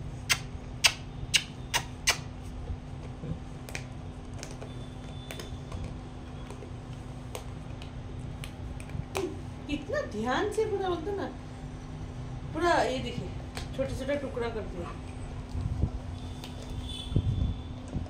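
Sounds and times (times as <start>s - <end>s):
dog chewing and crunching: 1.8s - 9.4s, 14.9s - 16.9s.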